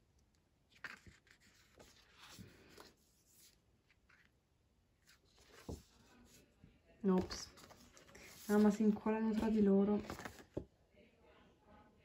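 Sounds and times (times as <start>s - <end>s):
postcards rubbing and rustling: 0.7s - 4.4s, 7.1s - 10.6s.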